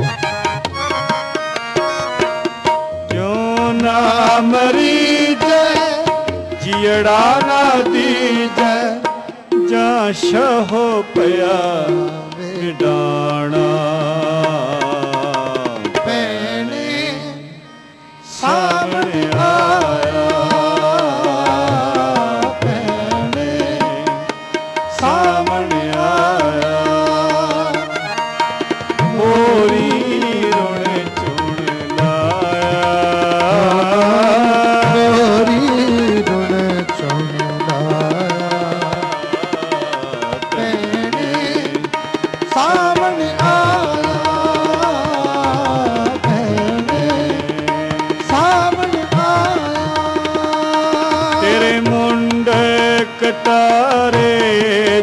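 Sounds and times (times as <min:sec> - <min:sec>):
harmonium: 0:00.0 - 0:55.0
men singing: 0:00.0 - 0:55.0
tabla: 0:00.0 - 0:55.0.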